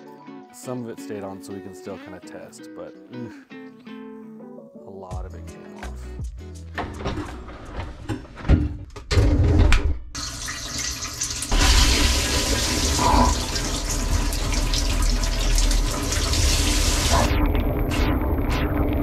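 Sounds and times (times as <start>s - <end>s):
knocks and clatters: 6.8s - 10.0s
dishwasher water spraying: 10.2s - 17.4s.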